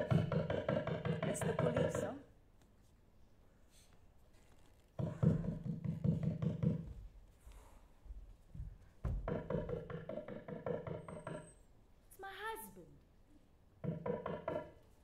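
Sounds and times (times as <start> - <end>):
rapid knocking on door: 0.0 - 2.1, 5.0 - 7.2, 8.5 - 11.5, 13.8 - 14.8.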